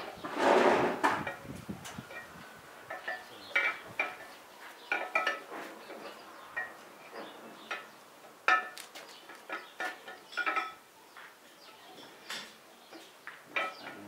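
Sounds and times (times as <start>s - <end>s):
metal clinks and knocks: 2.1s - 2.3s, 2.9s - 10.8s, 13.5s - 14.0s.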